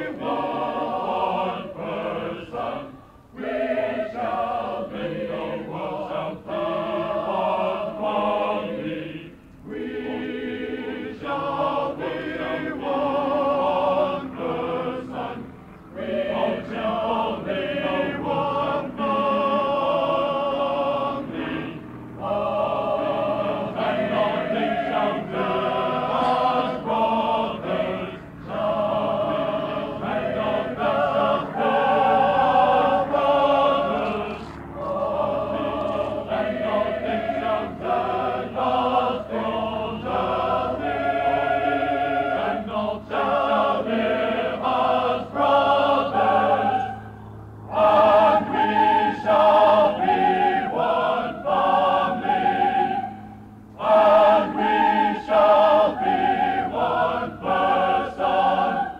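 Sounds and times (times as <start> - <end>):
choir singing: 0.0 - 58.9
singers breathing: 2.9 - 3.4.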